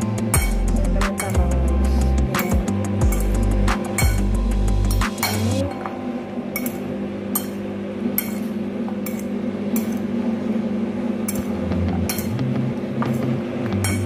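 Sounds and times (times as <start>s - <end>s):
metal fork clinking on plate: 12.1s - 12.4s.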